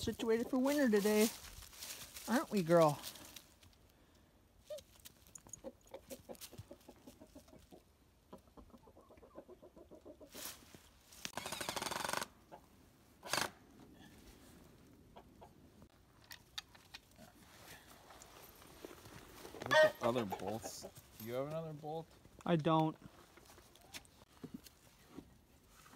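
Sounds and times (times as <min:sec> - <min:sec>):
rustling noise: 0:00.0 - 0:03.7, 0:10.3 - 0:11.4, 0:17.3 - 0:19.8
chickens clucking: 0:05.4 - 0:10.5, 0:12.4 - 0:12.8, 0:14.8 - 0:15.9, 0:19.4 - 0:21.1.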